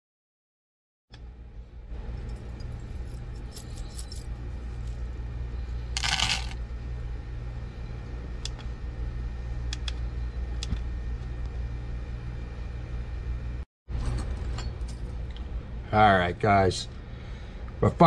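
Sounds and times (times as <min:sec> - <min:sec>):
steady low hum: 0:01.1 - 0:18.0
metal pieces clattering onto scale: 0:06.0 - 0:06.6.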